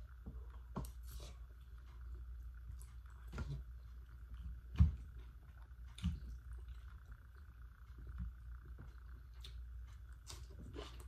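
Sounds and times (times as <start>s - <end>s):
steady low hum: 0.0s - 11.0s
slurping and chewing: 9.1s - 11.0s.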